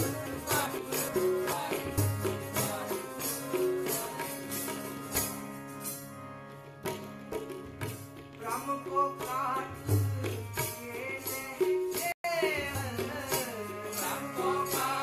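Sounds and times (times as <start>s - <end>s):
man singing: 0.0s - 4.9s, 8.4s - 15.0s
harmonium playing held chords: 0.0s - 15.0s
tabla strokes: 6.8s - 15.0s.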